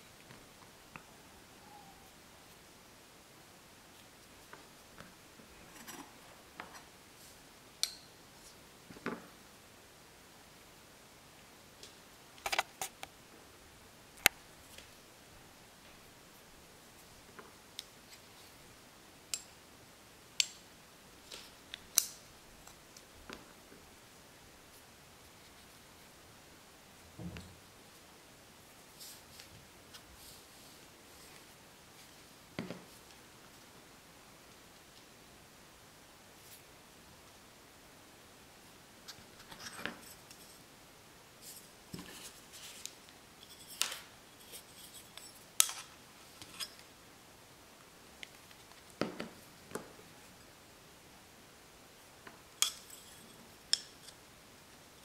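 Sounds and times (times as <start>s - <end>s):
small metal clicks of knife parts: 7.8s - 8.1s.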